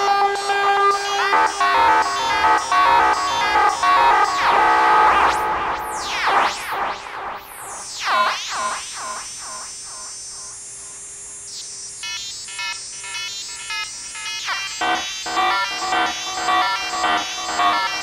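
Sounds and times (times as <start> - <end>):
high steady tone: 0.8 - 11.0, 13.5 - 18.0
choppy stuttering tones: 1.1 - 10.1, 13.8 - 18.0.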